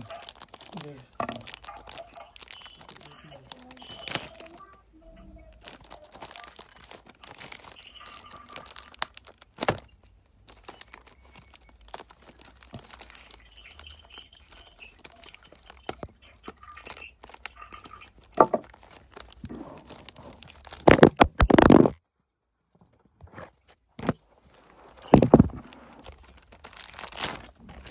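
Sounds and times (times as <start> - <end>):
clicks and rubbing on microphone: 20.2 - 22.0.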